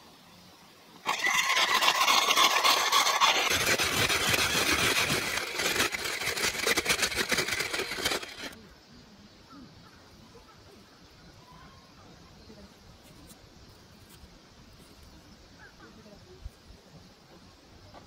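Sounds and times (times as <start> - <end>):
electric ice shaver grinding: 1.0 - 8.6.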